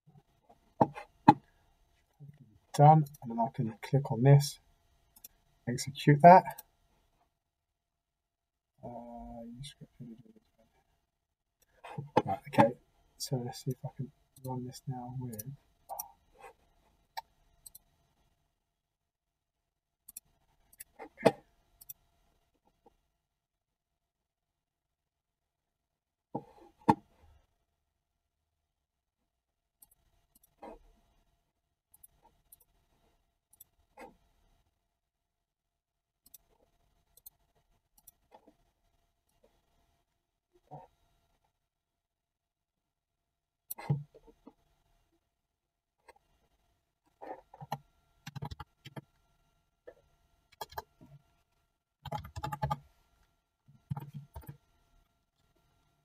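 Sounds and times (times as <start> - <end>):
keyboard typing clicks: 47.6 - 49.1, 50.5 - 50.9, 52.0 - 52.8.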